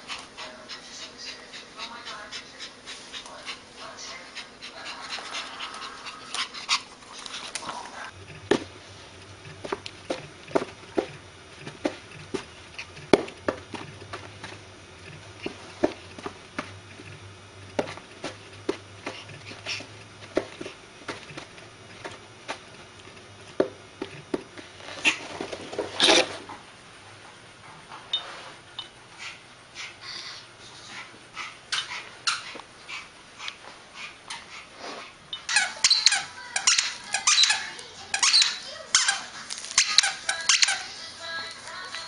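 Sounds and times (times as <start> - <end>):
dog panting: 0.0 - 8.1, 29.1 - 38.7.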